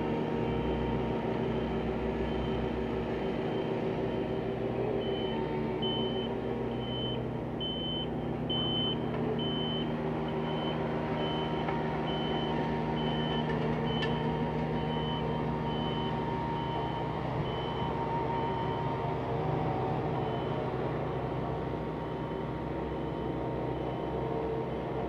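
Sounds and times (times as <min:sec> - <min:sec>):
paving machinery engines running: 0:00.0 - 0:25.0
backup alarm beeping: 0:05.0 - 0:09.9.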